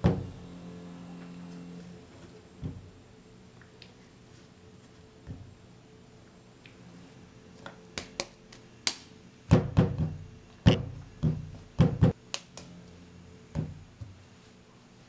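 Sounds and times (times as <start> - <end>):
hands patting clay on a board: 8.0 - 12.6.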